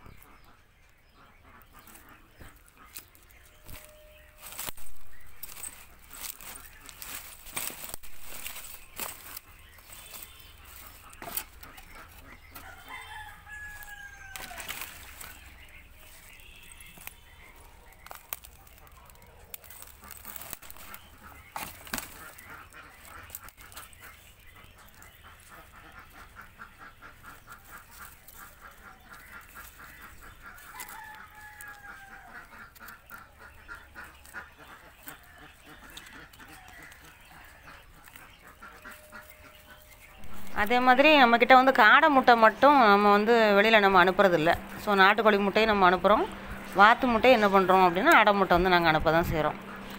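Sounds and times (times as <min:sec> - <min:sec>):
rooster crowing: 0:12.6 - 0:14.8, 0:30.6 - 0:32.4.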